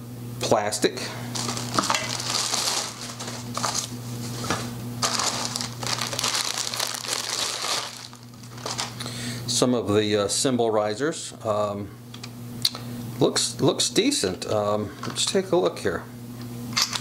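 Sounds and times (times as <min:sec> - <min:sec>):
plastic bags crinkling: 0:01.3 - 0:09.1.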